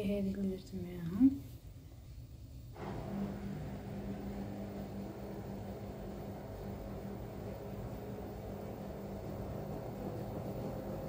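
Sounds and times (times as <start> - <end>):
appliance electric motor humming: 2.8 - 11.0.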